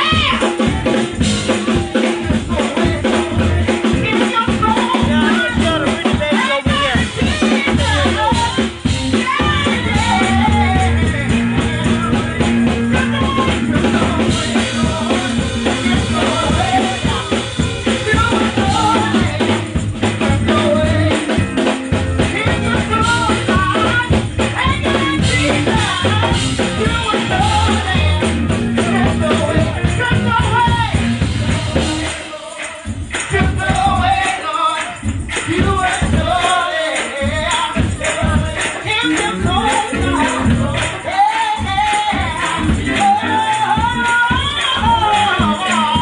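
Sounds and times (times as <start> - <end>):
woman singing: 0.0 - 0.8, 1.4 - 46.0
live band playing: 0.0 - 46.0
steady drum beat: 0.0 - 46.0.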